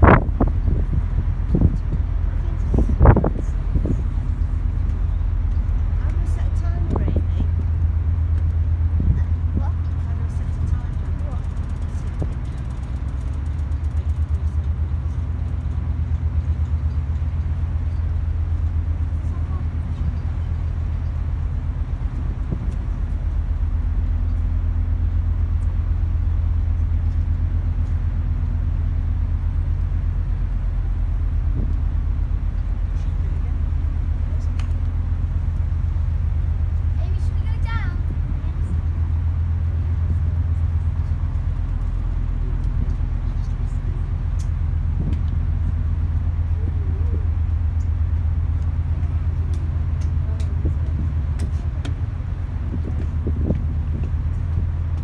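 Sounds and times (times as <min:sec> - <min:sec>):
ferry engines droning: 0:00.0 - 0:55.0
faint passenger voices: 0:01.5 - 0:07.7, 0:08.9 - 0:16.0, 0:19.0 - 0:21.3, 0:32.8 - 0:35.9, 0:36.8 - 0:53.4.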